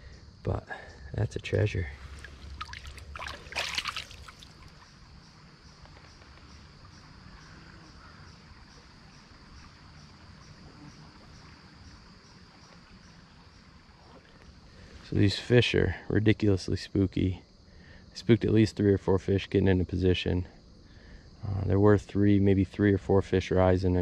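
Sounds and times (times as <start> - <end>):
stream trickling: 1.4 - 15.6
water splashing: 2.0 - 5.0.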